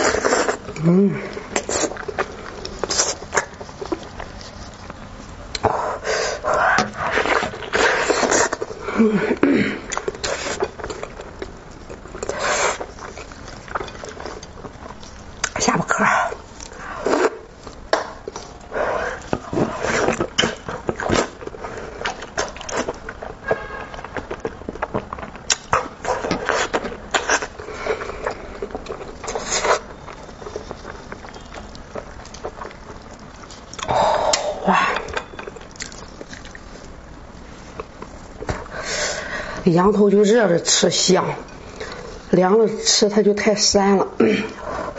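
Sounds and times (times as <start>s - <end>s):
wet chewing and lip smacking: 16.6s - 37.0s.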